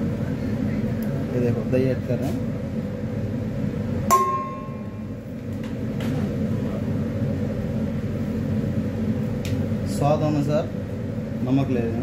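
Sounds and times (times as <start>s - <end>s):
steady low hum: 0.0s - 12.0s
metal bowl clang: 4.1s - 5.0s.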